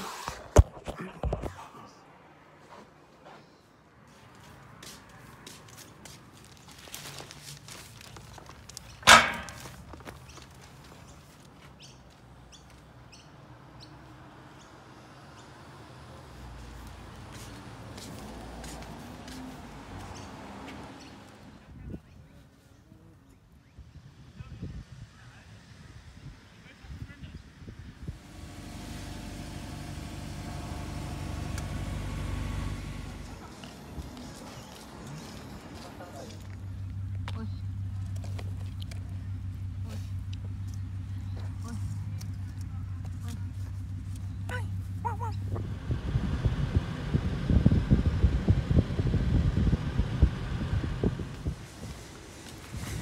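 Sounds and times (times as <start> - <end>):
car engine running: 28.0 - 52.8
wind buffeting microphone: 45.4 - 53.0.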